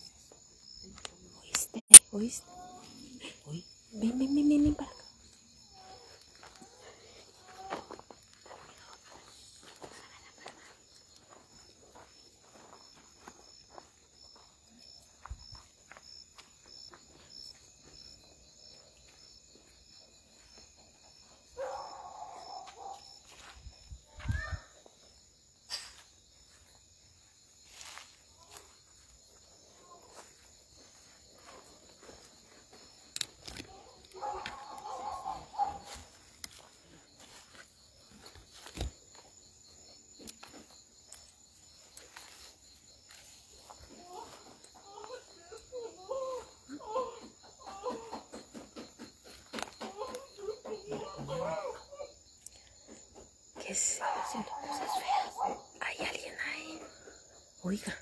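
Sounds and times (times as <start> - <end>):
crickets chirping: 0.0 - 58.0
faint footsteps: 4.6 - 21.9, 27.6 - 45.2.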